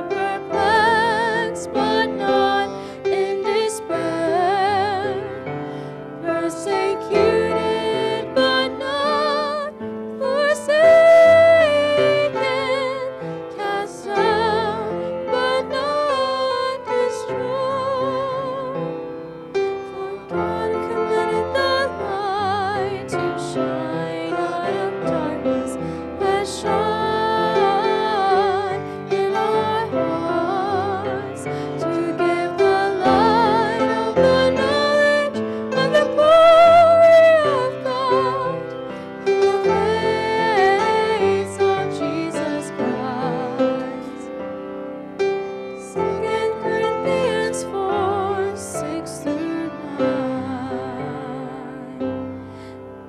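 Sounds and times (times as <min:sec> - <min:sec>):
young voices singing: 0:00.0 - 0:05.2, 0:20.0 - 0:38.7, 0:39.3 - 0:44.0
grand piano accompaniment: 0:00.0 - 0:53.0.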